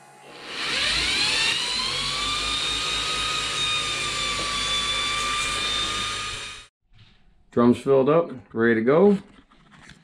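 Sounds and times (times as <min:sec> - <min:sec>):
electric drill motor whine: 0:00.0 - 0:06.7.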